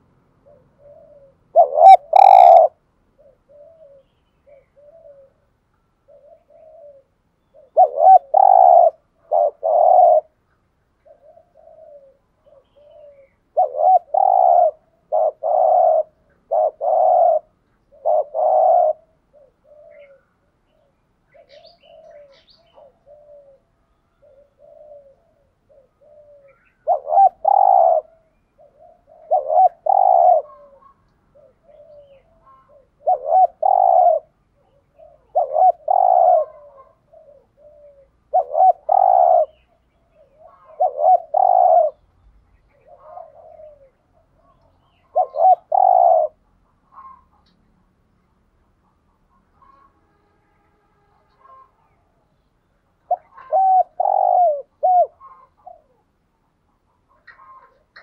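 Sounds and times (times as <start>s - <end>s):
dove cooing: 0.0s - 47.6s, 51.3s - 52.1s, 52.9s - 58.0s.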